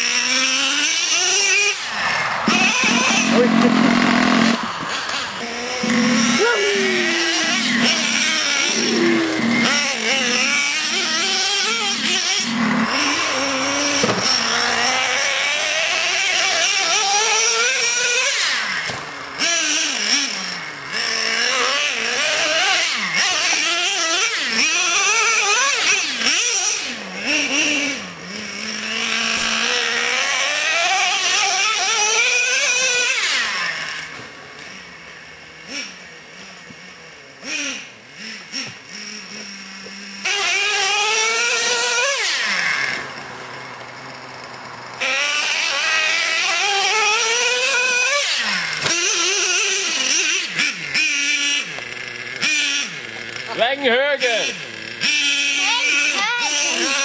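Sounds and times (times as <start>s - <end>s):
rc truck nitro engine buzzing: 0.0s - 57.0s.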